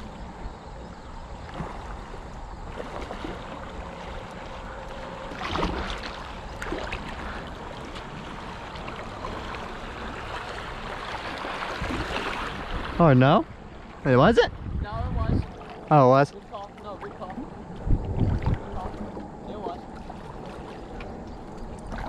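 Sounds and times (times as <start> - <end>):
paddle splashes: 0.0 - 22.0
water rushing around kayak hull: 0.0 - 22.0
wind on microphone: 11.6 - 15.8, 17.2 - 22.0.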